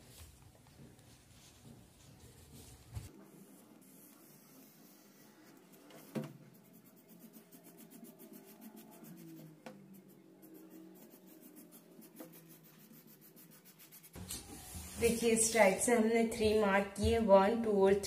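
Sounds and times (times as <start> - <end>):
marker scratching on paper: 3.8 - 15.5.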